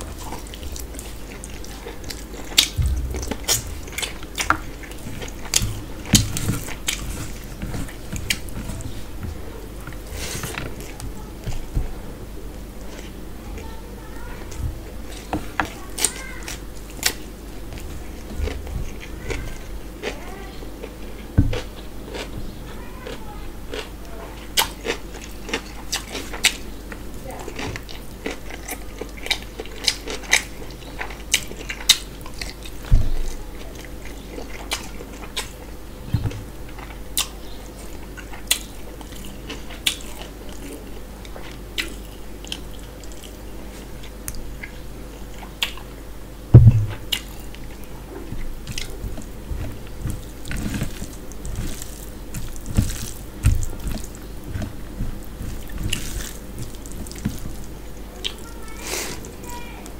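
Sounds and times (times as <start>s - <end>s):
chewing and mouth smacks: 36.7s - 43.4s, 47.0s - 58.5s
dull thumps on table: 46.6s - 47.0s.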